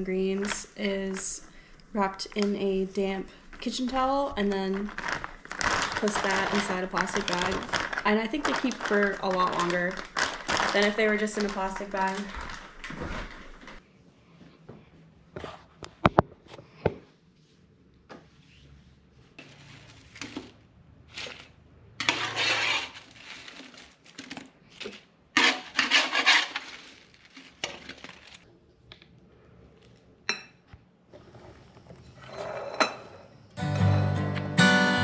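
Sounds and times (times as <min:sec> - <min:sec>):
metal spatula scraping baking tray: 0:22.0 - 0:23.5, 0:25.4 - 0:27.0.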